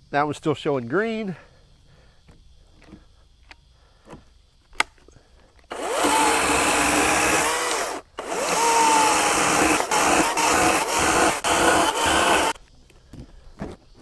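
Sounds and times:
chainsaw cutting log: 5.7 - 12.6.

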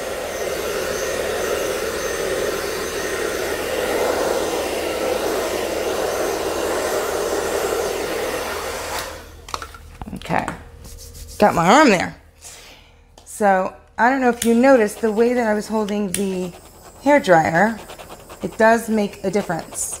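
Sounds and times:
hair dryer blowing: 0.0 - 9.4, 14.6 - 20.0.

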